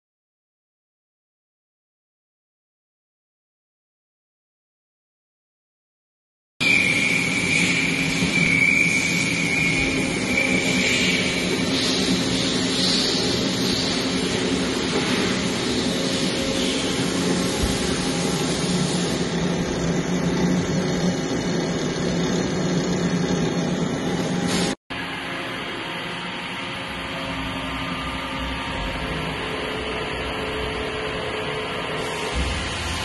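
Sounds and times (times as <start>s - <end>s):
lathe humming and hissing: 6.6s - 33.0s.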